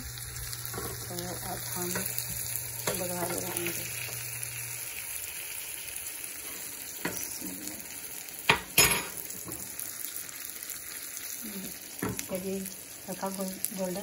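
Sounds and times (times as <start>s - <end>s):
onions sizzling in a pan: 0.0s - 14.0s.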